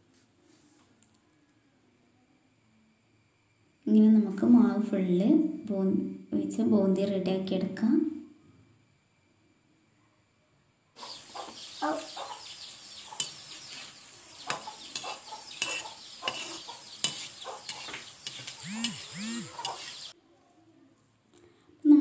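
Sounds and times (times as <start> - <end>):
batter frying in hot oil: 11.0 - 20.1
hen clucking: 11.0 - 20.1.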